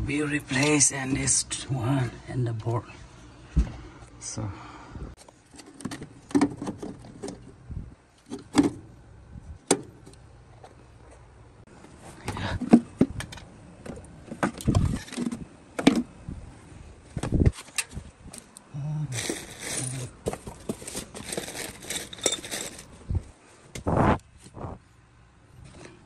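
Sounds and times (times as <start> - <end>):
clicks and rattling of handled objects: 17.5 - 23.0.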